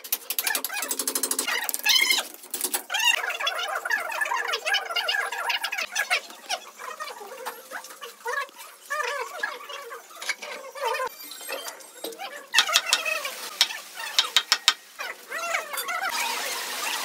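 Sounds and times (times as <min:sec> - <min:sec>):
mallet knocking on wood: 0:14.2 - 0:14.8.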